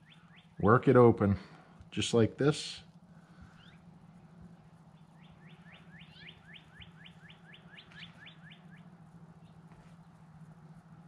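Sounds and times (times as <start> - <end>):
songbird whistling: 0.0 - 0.6, 3.5 - 3.9, 5.0 - 9.6
faint low hum: 0.0 - 11.0.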